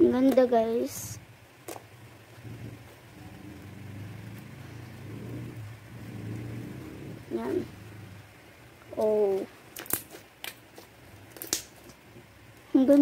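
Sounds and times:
low motor hum: 0:00.0 - 0:12.7.

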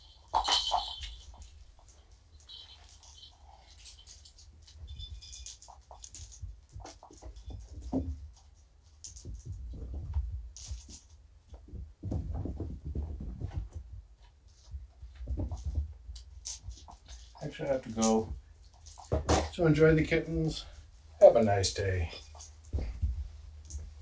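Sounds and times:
rustling and scratching: 0:00.0 - 0:24.0
soft thumps: 0:11.5 - 0:16.0, 0:22.7 - 0:24.0.

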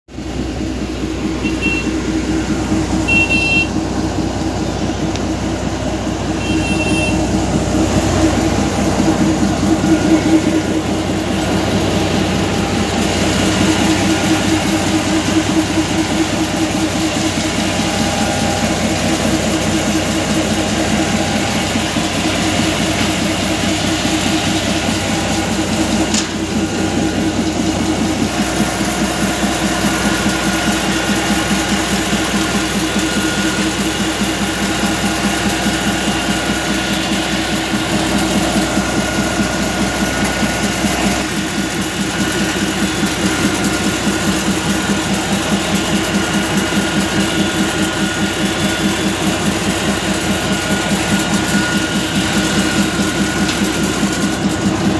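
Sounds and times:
diesel locomotive engine running: 0:00.0 - 0:54.9
thin steady whine: 0:00.2 - 0:54.9.

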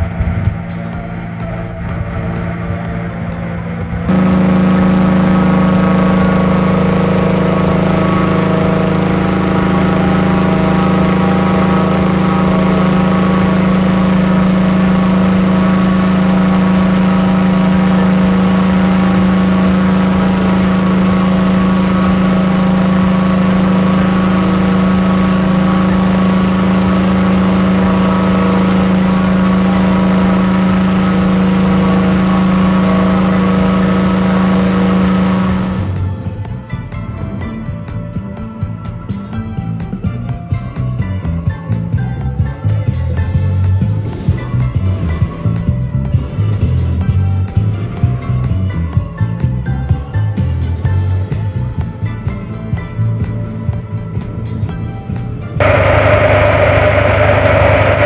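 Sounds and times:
engine-driven fan droning: 0:00.0 - 0:37.3, 0:55.1 - 0:58.0.

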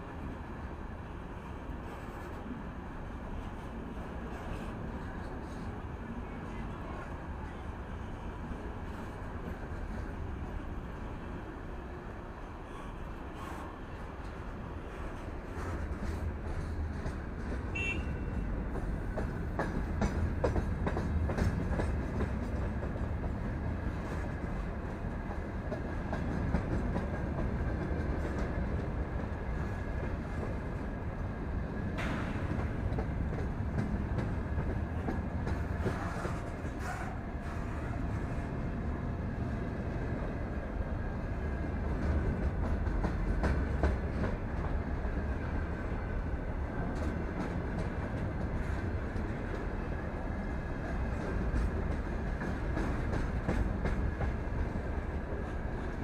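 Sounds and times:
steel wheels rumbling on rail: 0:00.0 - 0:56.0.

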